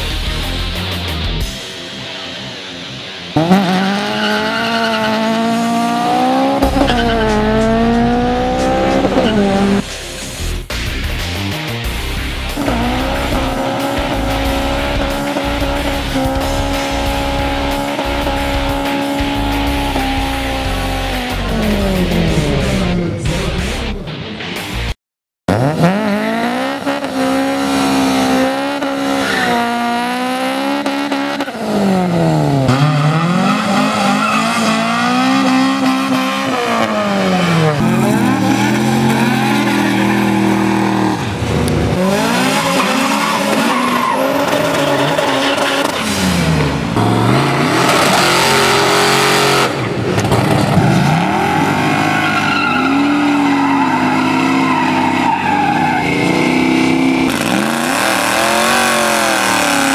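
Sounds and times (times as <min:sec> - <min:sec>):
car engines revving hard: 0:00.0 - 0:24.0, 0:25.5 - 0:59.9
tyres squealing: 0:51.3 - 0:57.2.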